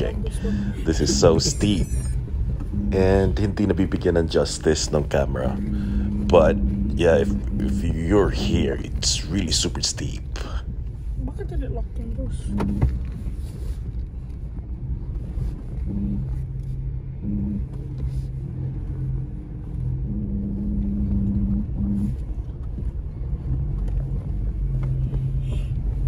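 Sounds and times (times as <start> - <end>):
brakes humming: 0.0 - 26.0
vehicle low rumble: 0.0 - 26.0.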